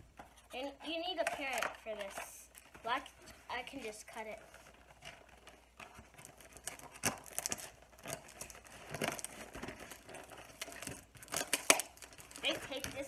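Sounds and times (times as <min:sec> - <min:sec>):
cardboard box rustling: 0:01.8 - 0:13.0
packing tape peeling off box: 0:04.8 - 0:12.9.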